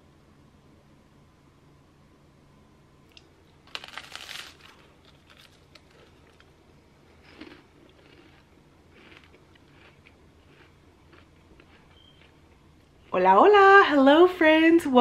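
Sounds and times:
rice cake crunching: 0:03.1 - 0:13.1.

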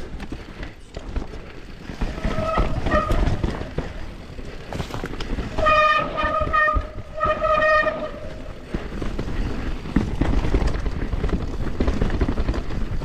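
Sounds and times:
bike tyres rattling on rough trail: 0:00.0 - 0:13.0
bike disc brakes squealing: 0:02.1 - 0:03.5.

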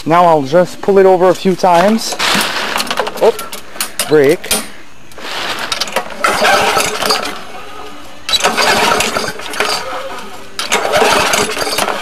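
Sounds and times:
lawn mower engine cranking: 0:01.6 - 0:04.6, 0:05.2 - 0:12.0
pull-start rope pulled: 0:05.2 - 0:07.6, 0:08.3 - 0:12.0.

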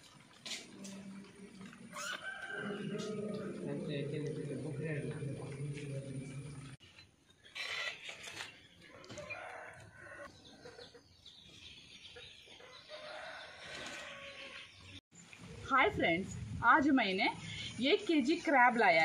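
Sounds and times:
chickens clucking: 0:08.8 - 0:12.8.

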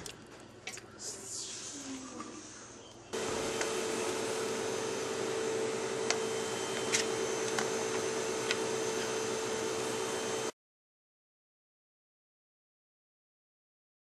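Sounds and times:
machine hum and hiss: 0:01.1 - 0:10.5.

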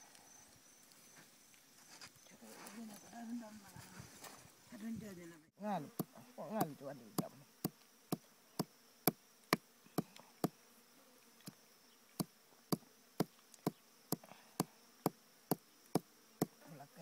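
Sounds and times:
high insect drone: 0:05.6 - 0:17.0.

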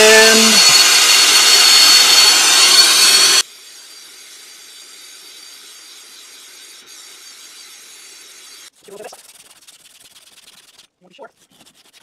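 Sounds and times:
torch flame hissing and whistling: 0:00.0 - 0:08.7.

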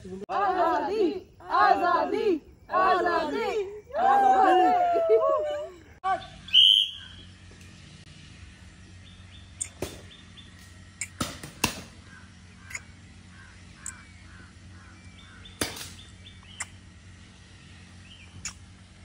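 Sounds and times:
bird calling: 0:06.1 - 0:07.4, 0:09.0 - 0:17.0, 0:17.9 - 0:18.8.

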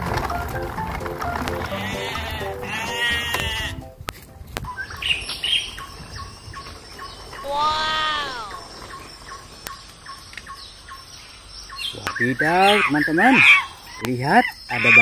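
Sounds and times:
animal bleating: 0:01.6 - 0:03.8, 0:07.4 - 0:08.7
bird chirps: 0:01.9 - 0:15.0.

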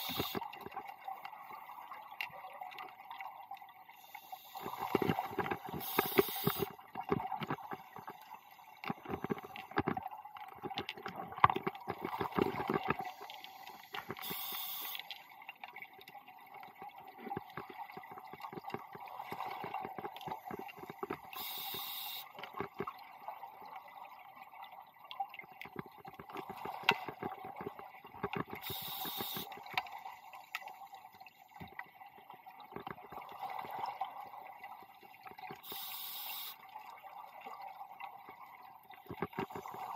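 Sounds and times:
exhaled air bubbling: 0:04.0 - 0:29.8, 0:31.6 - 0:39.9
regulator inhale hiss: 0:05.8 - 0:06.7, 0:13.2 - 0:15.1, 0:21.4 - 0:22.3, 0:28.6 - 0:29.5, 0:35.6 - 0:36.6.

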